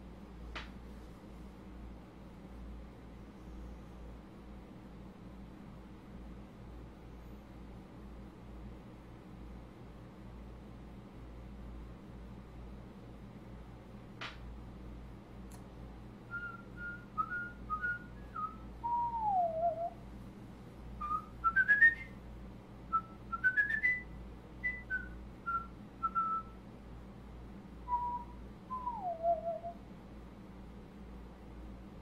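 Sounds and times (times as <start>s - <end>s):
steady low hum: 0.0s - 32.0s
person whistling a tune: 16.3s - 20.0s, 21.0s - 22.1s, 22.9s - 26.5s, 27.9s - 29.8s.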